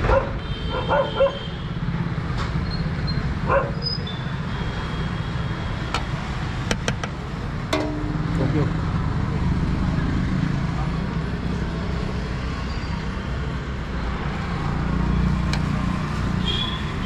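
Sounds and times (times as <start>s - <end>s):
dog barking: 0.0s - 1.5s, 3.4s - 3.9s
street traffic rumble: 0.0s - 17.0s.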